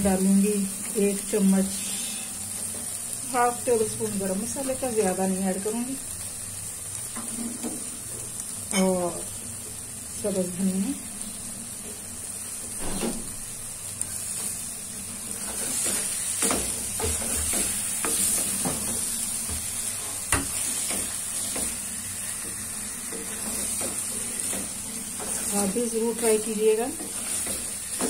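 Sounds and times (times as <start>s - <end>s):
curry sizzling in pan: 0.0s - 28.0s
spoon scraping and knocking pan: 15.4s - 21.8s, 22.4s - 28.0s.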